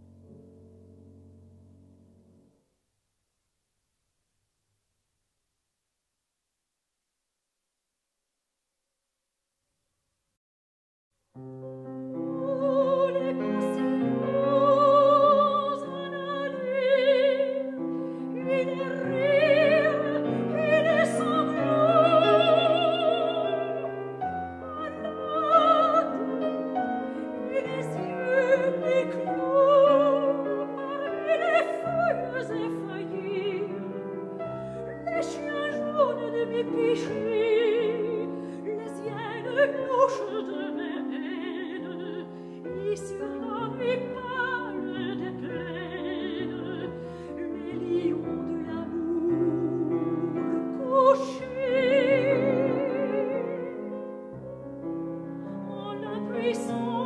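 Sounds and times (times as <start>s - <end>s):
piano chords: 11.4s - 57.0s
woman singing with vibrato: 12.2s - 34.2s, 34.8s - 54.0s, 55.5s - 57.0s.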